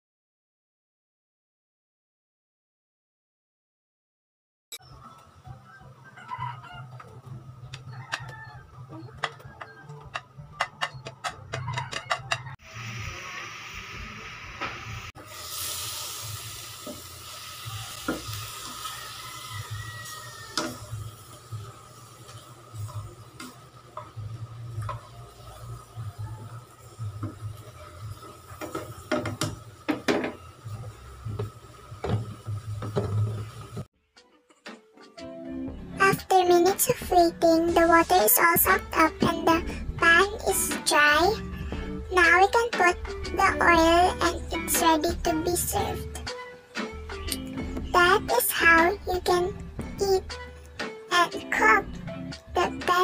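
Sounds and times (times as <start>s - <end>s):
meat sizzling in a pan: 12.6s - 33.9s.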